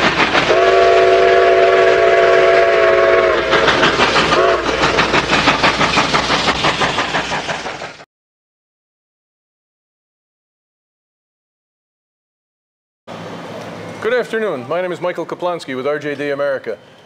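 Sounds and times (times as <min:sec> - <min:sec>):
steam locomotive chuffing: 0:00.0 - 0:08.1
chime steam whistle: 0:00.5 - 0:03.7, 0:04.3 - 0:04.8.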